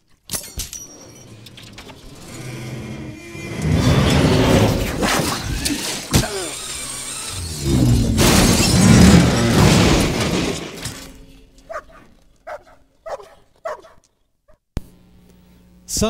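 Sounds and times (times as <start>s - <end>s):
short cries: 5.5s - 7.4s.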